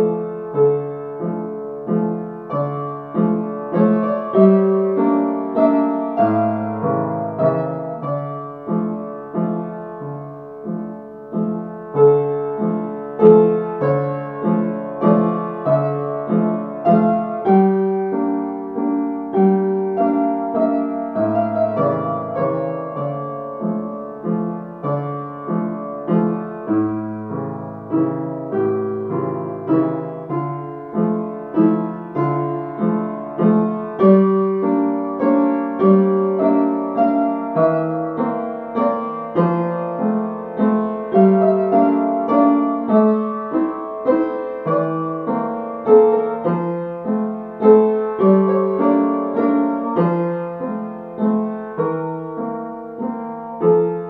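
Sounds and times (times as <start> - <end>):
solo piano melody: 0.0 - 54.0.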